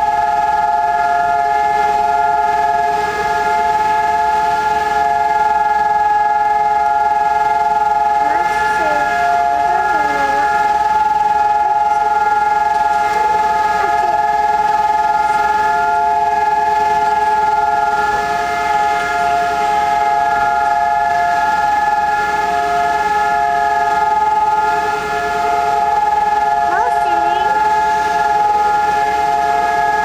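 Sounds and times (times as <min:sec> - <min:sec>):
steady civil defence sirens: 0:00.0 - 0:30.0.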